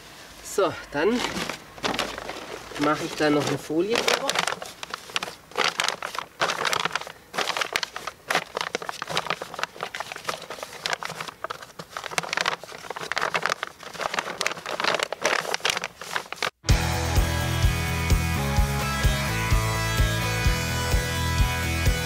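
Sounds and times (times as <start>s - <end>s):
plastic sheet crinkling: 1.0s - 16.6s.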